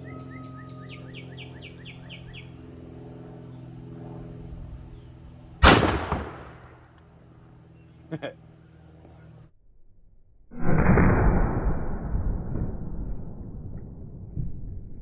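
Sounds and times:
bird chirping: 0.0s - 2.6s
shotgun shot echoing: 5.6s - 6.8s.

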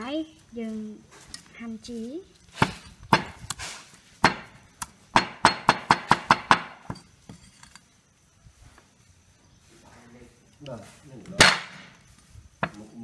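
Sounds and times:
cleaver chopping on wooden board: 2.6s - 3.4s, 4.2s - 4.5s, 5.1s - 7.0s.

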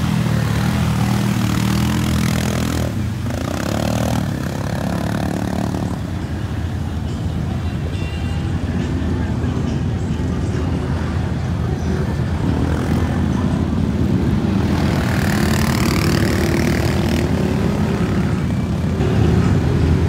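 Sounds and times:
quad engine revving hard: 0.0s - 6.0s
mud and water splashing: 0.0s - 7.0s.

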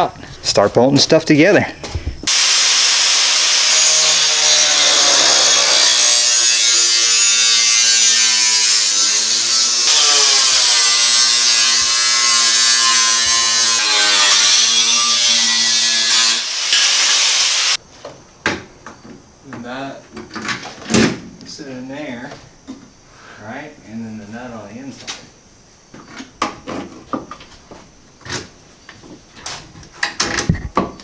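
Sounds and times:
angle grinder cutting sheet metal: 2.3s - 17.8s.

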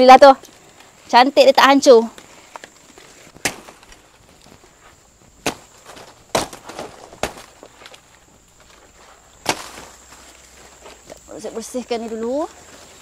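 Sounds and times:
machete chopping plant stalk: 3.4s - 3.9s, 5.4s - 7.6s, 9.4s - 9.9s.

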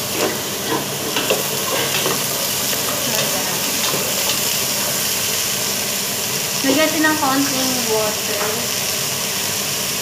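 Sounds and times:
vegetables sizzling in oil: 0.0s - 10.0s
spatula scraping metal pot: 0.1s - 3.2s.

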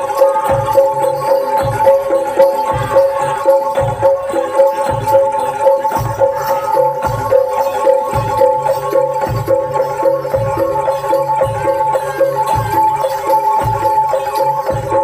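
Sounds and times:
high held tones: 0.0s - 15.0s.

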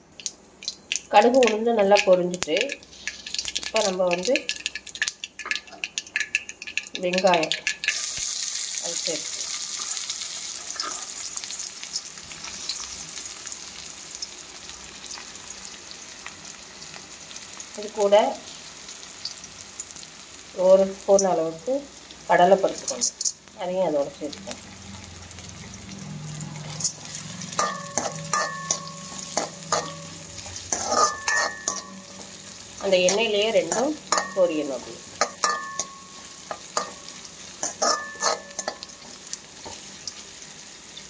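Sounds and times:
onion sizzling in hot oil: 0.0s - 41.0s
spoon knocking and scraping pan: 26.8s - 39.8s.

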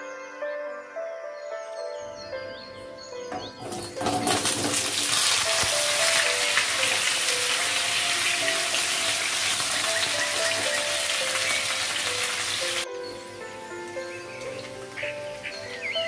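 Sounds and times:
potatoes sizzling in oil: 3.5s - 12.9s.

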